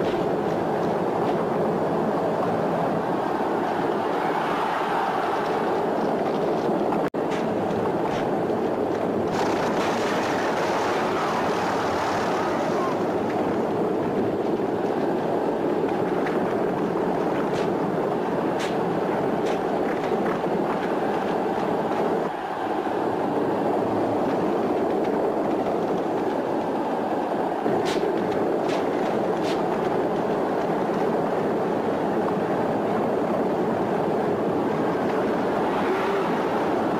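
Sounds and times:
galloping hooves and chariot wheels: 0.0 - 36.9
sharp cracks: 8.9 - 14.6.

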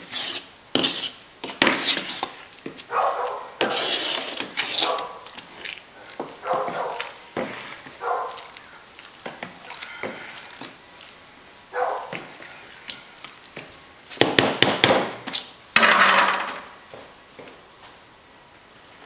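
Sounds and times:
spoon stirring thick mash: 0.0 - 11.2
spoon scraping plastic walls: 3.6 - 5.8.

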